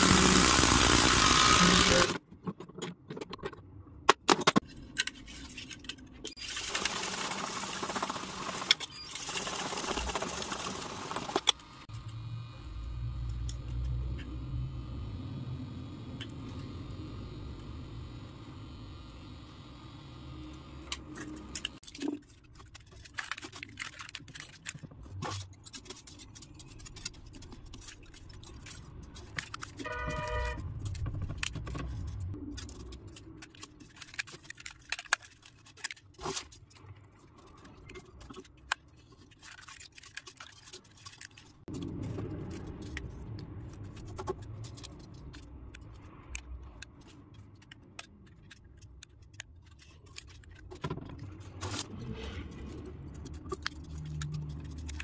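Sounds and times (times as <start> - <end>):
wire rustling and scraping: 4.7 - 6.6, 21.1 - 55.0.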